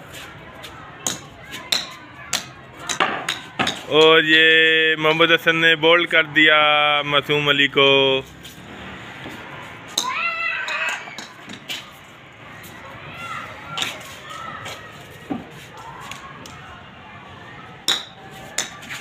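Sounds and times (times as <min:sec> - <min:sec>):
children calling faintly: 0:00.0 - 0:04.2, 0:09.1 - 0:19.0.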